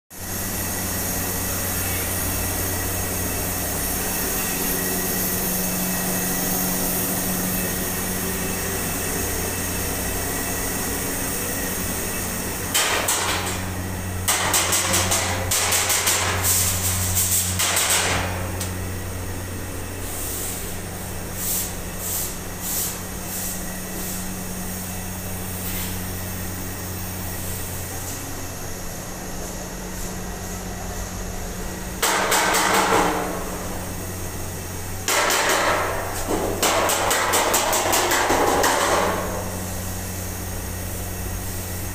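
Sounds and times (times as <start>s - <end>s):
gas burners hissing: 0.1s - 41.9s
low electric hum: 0.1s - 41.9s.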